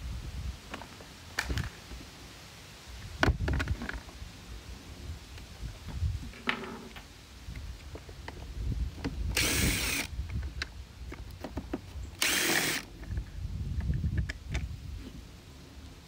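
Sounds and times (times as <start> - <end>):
cordless drill running: 9.4 - 10.1, 12.2 - 12.9.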